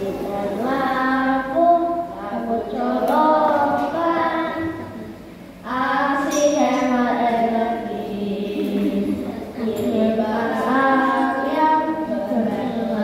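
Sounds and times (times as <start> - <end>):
children singing: 0.0 - 13.0.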